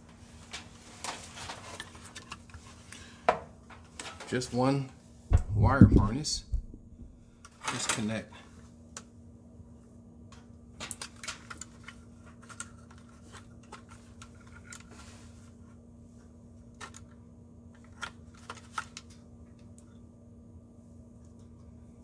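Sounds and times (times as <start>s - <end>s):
steady low hum: 5.1s - 7.6s.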